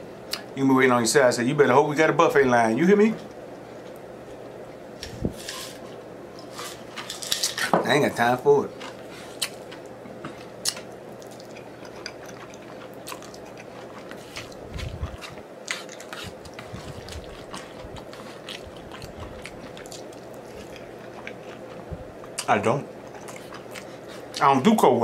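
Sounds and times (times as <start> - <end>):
wet chewing and lip smacking: 10.6 - 24.4.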